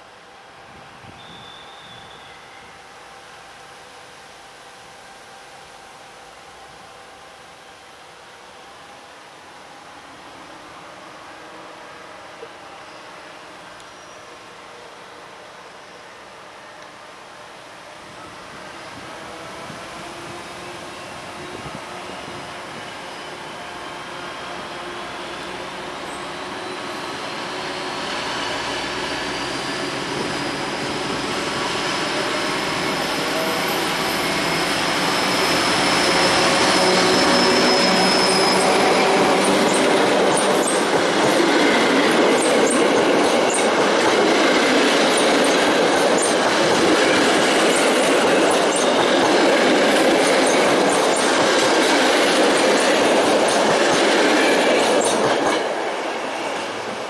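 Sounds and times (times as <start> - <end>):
locomotive whine: 0.0 - 57.0
train wheels rolling on rails: 17.9 - 57.0.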